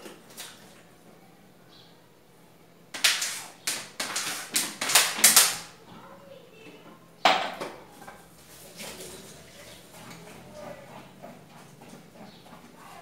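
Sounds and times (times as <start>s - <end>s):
water splashing in sink: 0.0s - 0.9s, 8.4s - 10.9s
dishes clattering: 7.2s - 8.2s.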